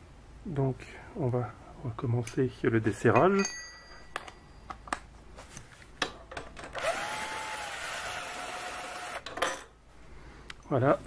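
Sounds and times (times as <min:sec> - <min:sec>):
metal tools clicking and knocking: 0:03.1 - 0:05.0
cordless drill running: 0:06.8 - 0:09.2.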